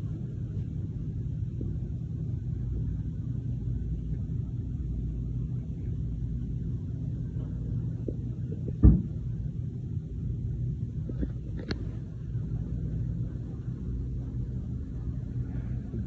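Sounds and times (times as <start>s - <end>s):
steady low rumble: 0.0s - 16.0s
short thump: 8.8s - 9.2s.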